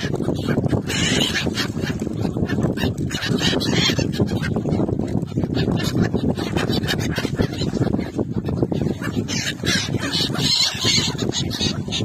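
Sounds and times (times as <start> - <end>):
gulls calling: 0.0 - 12.0.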